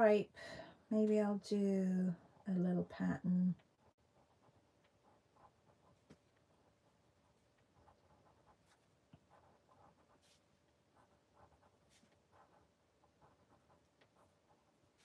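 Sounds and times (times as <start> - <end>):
pencil scratching on paper: 3.1 - 15.0.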